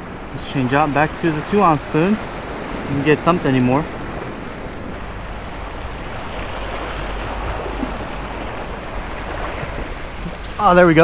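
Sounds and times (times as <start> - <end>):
waves washing against rocks: 0.0 - 11.0.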